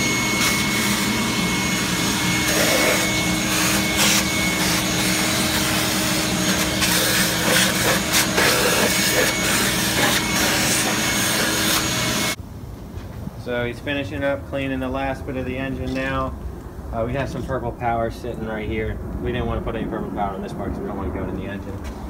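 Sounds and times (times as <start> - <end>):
shop vacuum running: 0.0 - 12.4.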